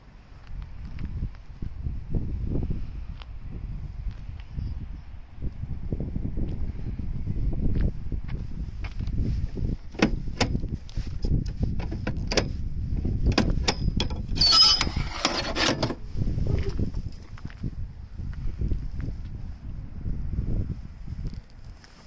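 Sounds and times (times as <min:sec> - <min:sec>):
sliding metal rattle: 0:13.4 - 0:16.0.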